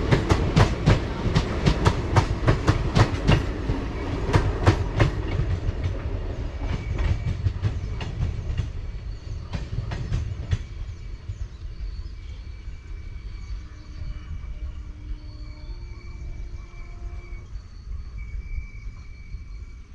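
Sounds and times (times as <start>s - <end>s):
train wheels clattering over rails: 0.0s - 12.1s.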